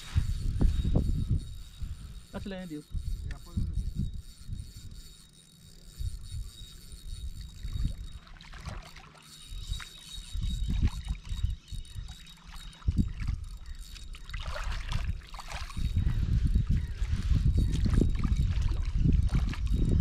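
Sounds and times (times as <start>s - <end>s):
river water sloshing: 7.4s - 11.4s, 12.0s - 15.8s.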